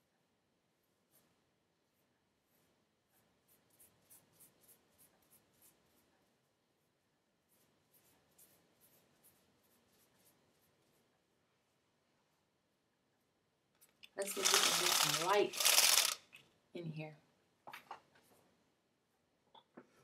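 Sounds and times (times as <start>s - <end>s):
fingers rustling through wet hair: 14.2s - 16.2s.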